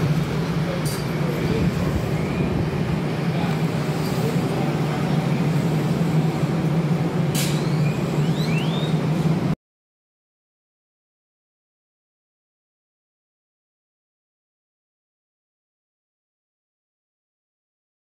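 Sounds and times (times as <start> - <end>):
train equipment humming: 0.0 - 9.6.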